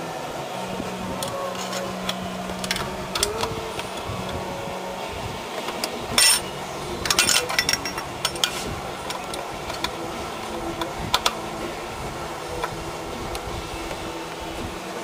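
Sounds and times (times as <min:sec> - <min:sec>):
metal tool clicking and scraping: 0:05.8 - 0:09.9.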